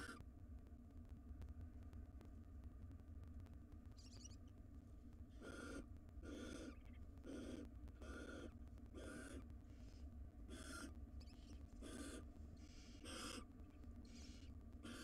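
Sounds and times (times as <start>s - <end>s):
owls hissing: 11.8s - 12.2s, 12.9s - 13.4s.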